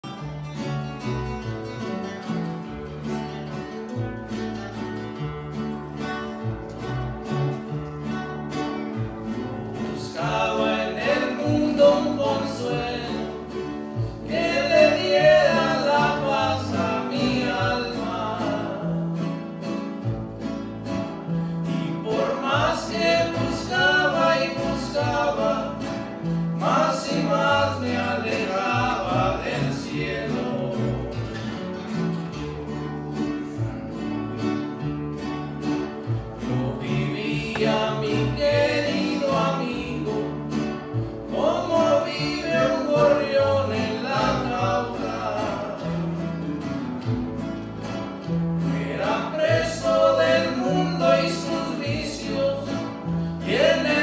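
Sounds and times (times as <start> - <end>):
acoustic guitars playing: 0.0 - 54.0
men singing praise song: 10.0 - 13.4, 14.2 - 19.0, 21.8 - 26.0, 26.6 - 31.0, 36.6 - 40.3, 41.3 - 46.0, 48.7 - 52.8, 53.4 - 54.0.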